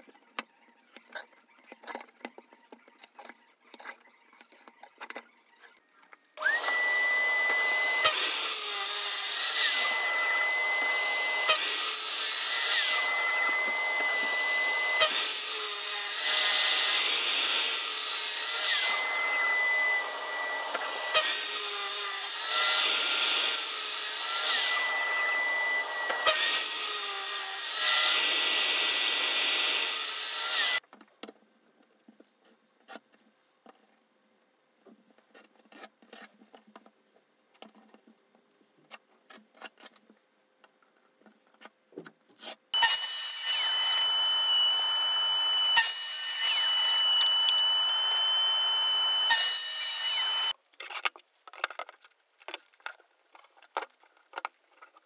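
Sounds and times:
miter saw cutting chipboard: 6.4s - 30.8s, 42.4s - 50.6s
motor whine: 43.7s - 50.5s.

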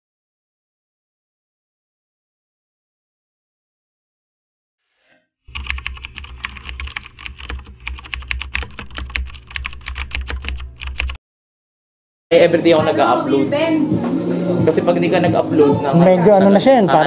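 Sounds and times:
keyboard key clicks: 5.6s - 11.2s.

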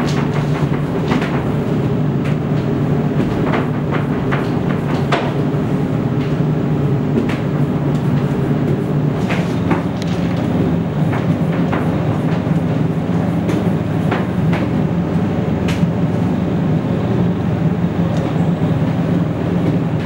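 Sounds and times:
scattered clicks and knocks: 0.0s - 1.6s, 2.2s - 6.4s, 7.1s - 14.8s
steady mechanical hum: 0.0s - 20.0s.

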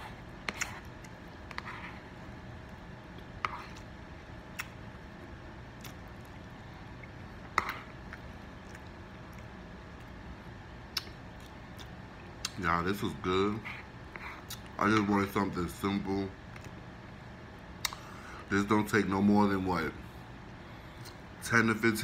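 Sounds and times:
wet chewing: 4.5s - 4.8s, 5.8s - 10.2s.

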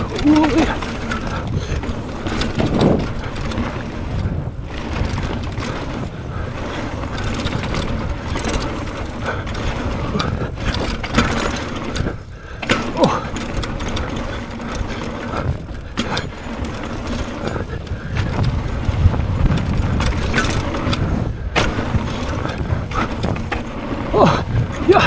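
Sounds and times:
bike frame rattling over bumps: 0.0s - 25.0s
wind and tyre noise: 0.0s - 25.0s.

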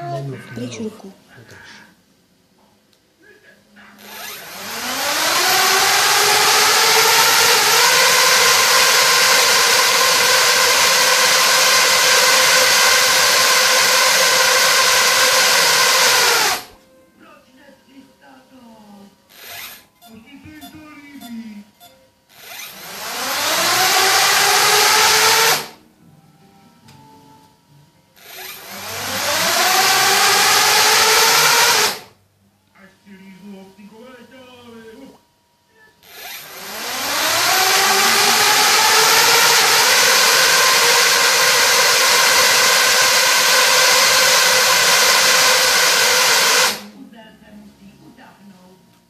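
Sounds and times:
drone propellers whining: 4.0s - 16.8s, 19.3s - 25.8s, 28.2s - 32.1s, 36.0s - 46.9s.

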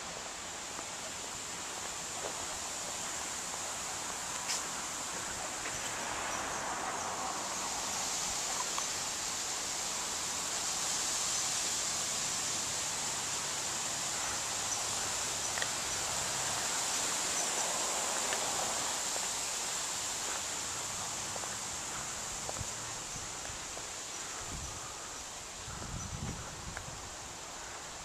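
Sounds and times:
high-pitched hiss: 0.0s - 28.0s
light ticks: 15.5s - 15.8s.

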